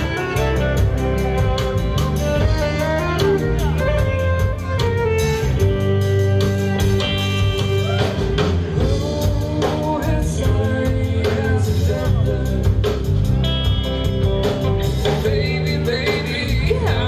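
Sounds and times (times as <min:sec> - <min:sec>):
fiddle: 0:00.0 - 0:07.9
bass guitar: 0:00.0 - 0:17.0
drum kit beat: 0:00.0 - 0:17.0
electric guitars: 0:00.0 - 0:17.0.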